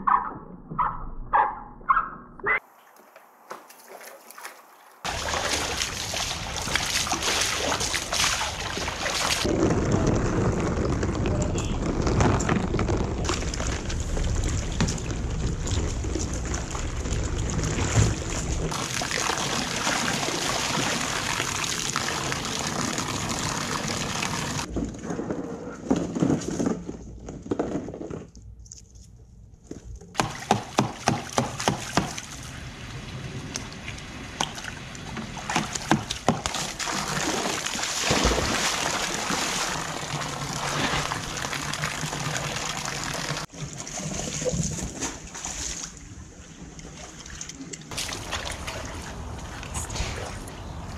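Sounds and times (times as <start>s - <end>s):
water splashing in tubs: 2.6s - 25.0s, 30.2s - 50.9s
hose pouring water: 5.0s - 24.7s, 31.5s - 46.0s.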